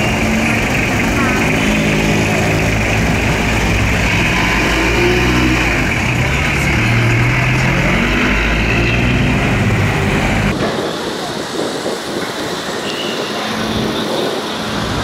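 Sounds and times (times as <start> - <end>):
vehicle engine revving: 0.0 - 10.8
street traffic: 0.0 - 15.0.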